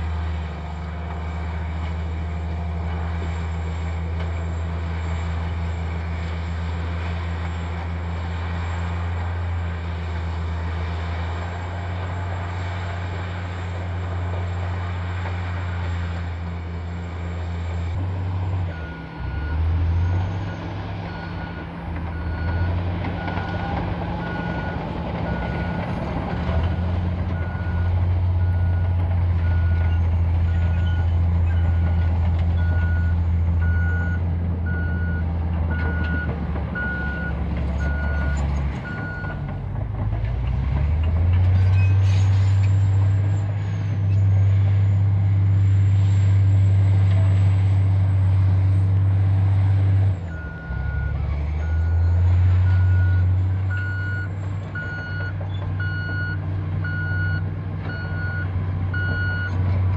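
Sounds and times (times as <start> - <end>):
bulldozer diesel engine running: 0.0 - 59.9
reversing alarm beeping: 27.4 - 39.4, 50.3 - 59.6.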